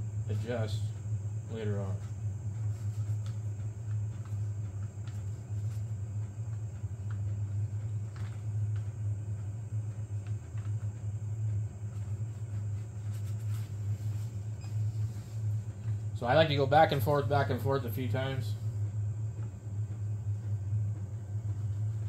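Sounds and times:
steady low hum: 0.0 - 22.0
paper clicks and rustles: 2.7 - 9.0.

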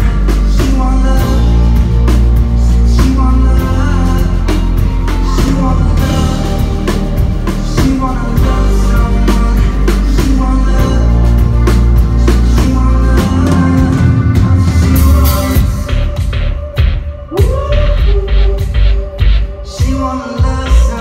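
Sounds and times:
drum kit hits: 0.0 - 21.0
heavy low bass: 0.0 - 21.0
person singing: 0.0 - 21.0.

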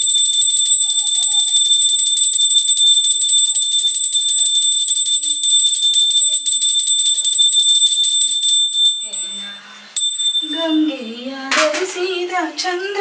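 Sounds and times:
hand bell ringing rapidly: 0.0 - 10.8
woman singing: 10.4 - 13.0.

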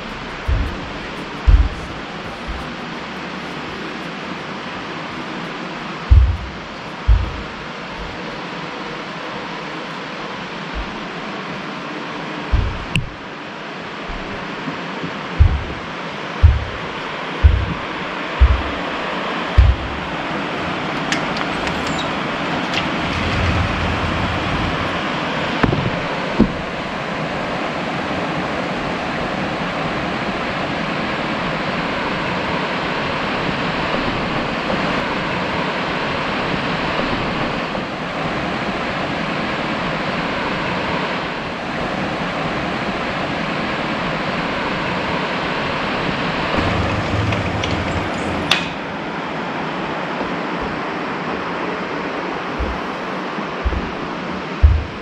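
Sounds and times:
river water rushing: 0.0 - 33.8.

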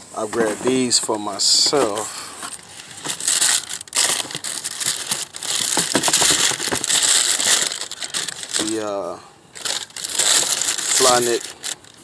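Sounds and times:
tissue paper crinkling: 1.8 - 8.8, 9.6 - 12.0.

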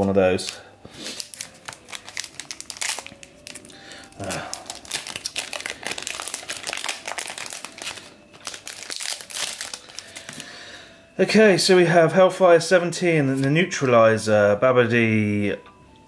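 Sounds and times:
foil wrapper crinkling: 0.3 - 10.5.

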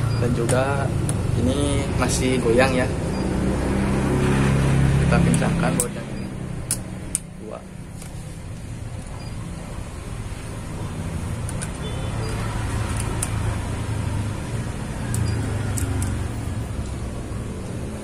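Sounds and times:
screwdriver clicks: 12.9 - 13.4, 15.0 - 16.3.

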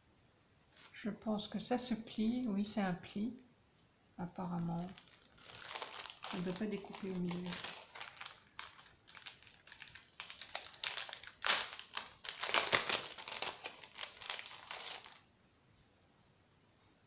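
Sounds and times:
plastic packaging crinkling: 0.7 - 1.0, 4.6 - 15.2.

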